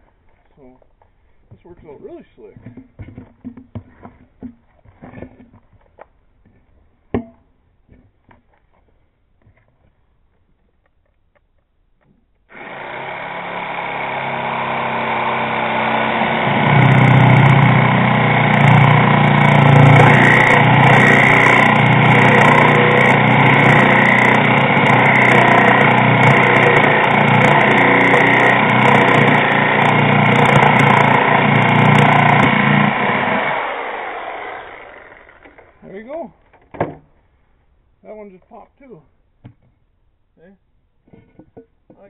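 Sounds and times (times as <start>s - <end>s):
reciprocating saw cutting tire: 12.5s - 35.8s.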